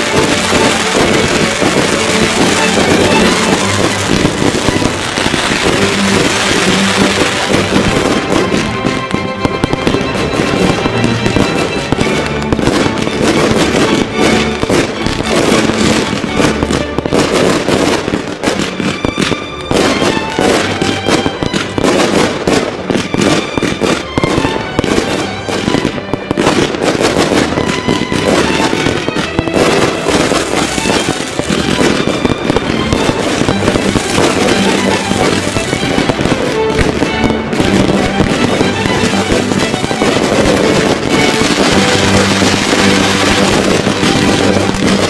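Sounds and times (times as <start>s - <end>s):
fireworks crackling and banging: 0.0s - 45.0s
music: 0.0s - 45.0s.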